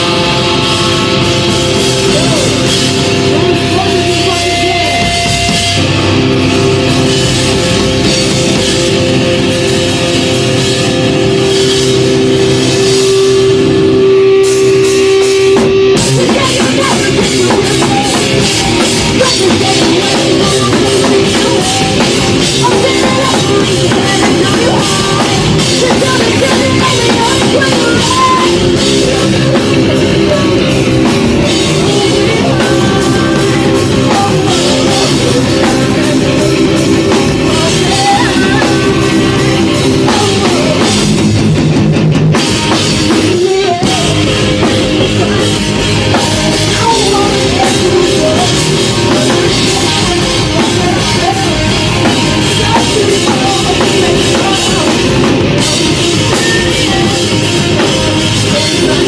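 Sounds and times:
rock band playing: 0:00.0 - 0:59.0
woman singing: 0:16.0 - 0:41.2, 0:43.1 - 0:59.0.

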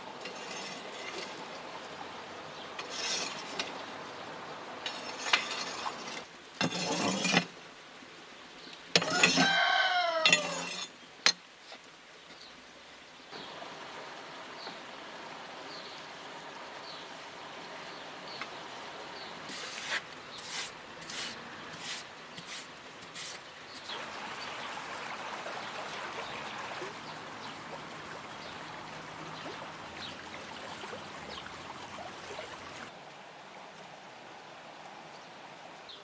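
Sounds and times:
metal rake scraping embers: 0:00.2 - 0:01.5, 0:02.8 - 0:03.8, 0:04.8 - 0:07.5, 0:09.0 - 0:11.0, 0:19.5 - 0:24.0
rooster crowing: 0:09.0 - 0:10.7.

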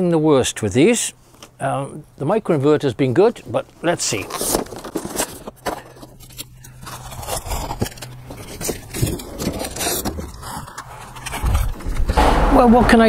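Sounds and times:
cardboard scraping and rustling: 0:03.6 - 0:12.2.

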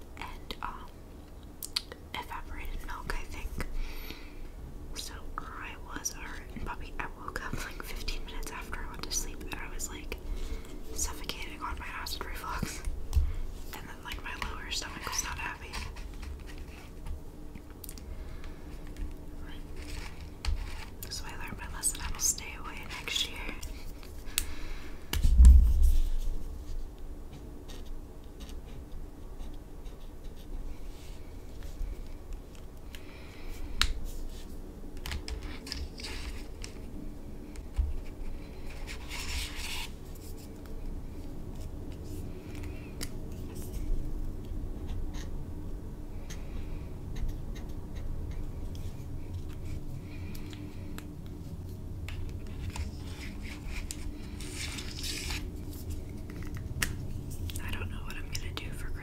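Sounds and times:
heavy low thump: 0:25.2 - 0:26.2.

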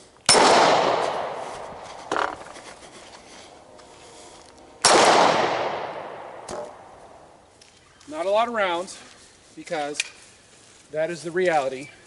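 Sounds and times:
pistol shots: 0:00.3 - 0:01.4, 0:04.8 - 0:06.9.

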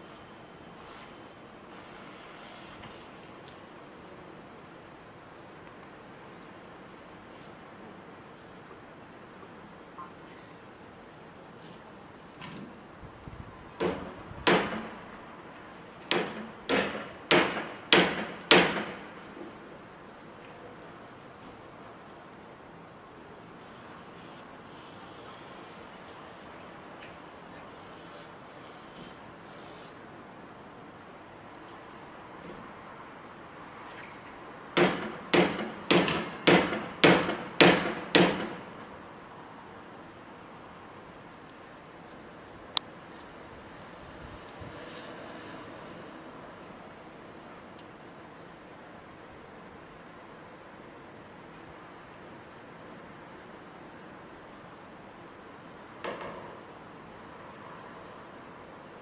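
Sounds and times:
heavy banging on a van: 0:16.1 - 0:19.1, 0:34.8 - 0:38.8.

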